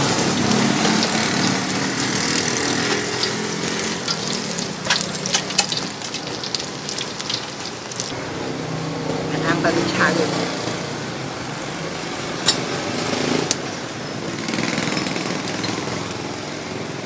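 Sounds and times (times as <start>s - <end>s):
oil sizzling and bubbling: 0.0s - 9.1s
spattering oil pops: 2.8s - 8.1s.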